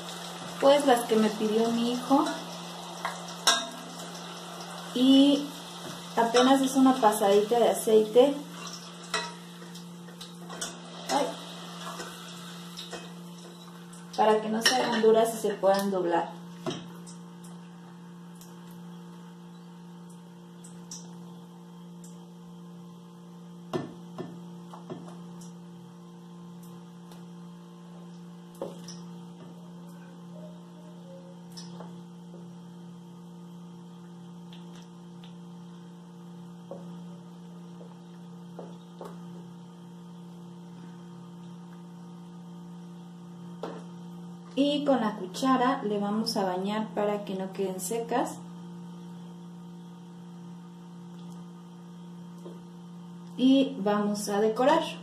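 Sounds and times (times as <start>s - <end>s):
electrical mains hum: 0.0s - 55.0s.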